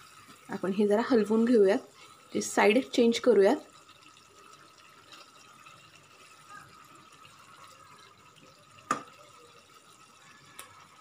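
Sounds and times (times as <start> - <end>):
gravy bubbling and stirring: 0.0 - 11.0.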